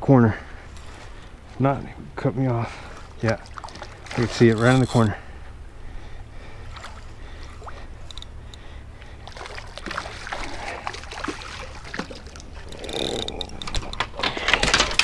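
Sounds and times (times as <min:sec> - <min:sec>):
shark splashing at water surface: 0:09.3 - 0:12.5.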